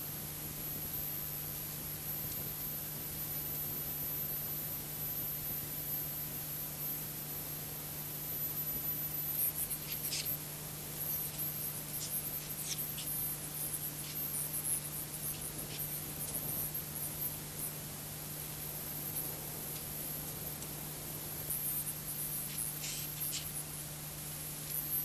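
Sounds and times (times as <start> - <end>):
broadcast audio hiss: 0.0 - 25.0
faint high whine: 0.0 - 25.0
steady low hum: 7.8 - 25.0.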